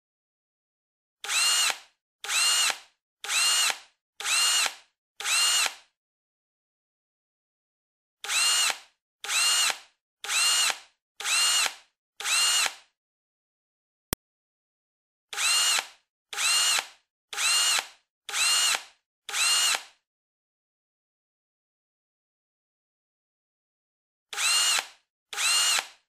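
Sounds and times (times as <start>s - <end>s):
power drill whirring: 1.2s - 5.9s, 8.2s - 12.9s, 15.3s - 20.0s, 24.3s - 26.0s.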